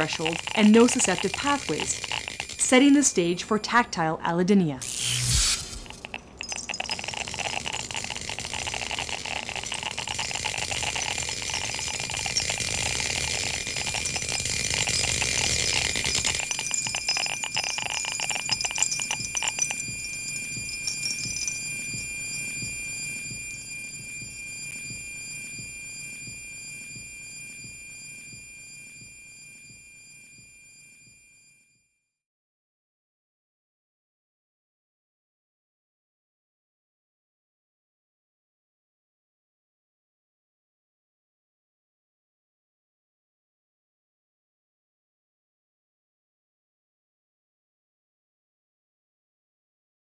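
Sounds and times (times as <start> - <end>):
bell-like ringing tones: 0.0 - 3.2, 4.8 - 31.0.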